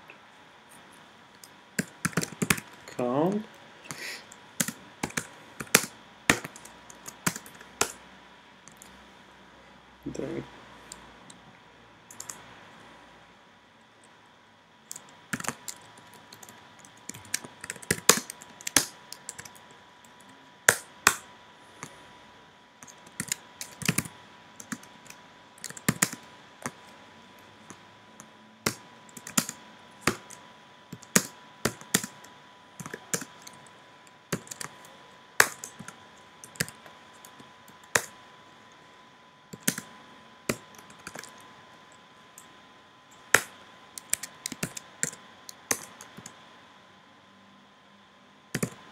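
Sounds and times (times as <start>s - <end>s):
faint steady tone: 0.0s - 48.9s
keyboard key clicks: 39.6s - 39.9s, 48.6s - 48.8s.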